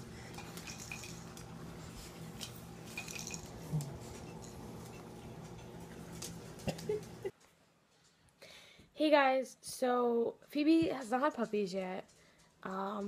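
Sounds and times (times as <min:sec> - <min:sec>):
steady low hum: 0:00.0 - 0:07.3.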